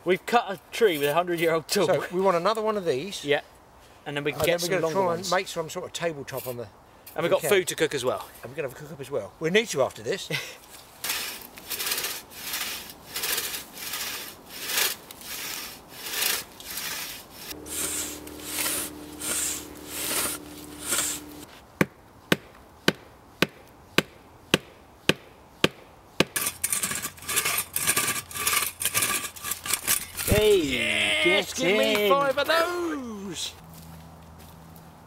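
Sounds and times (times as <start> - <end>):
crosscut saw rasping through log: 11.0 - 21.5, 26.2 - 30.3.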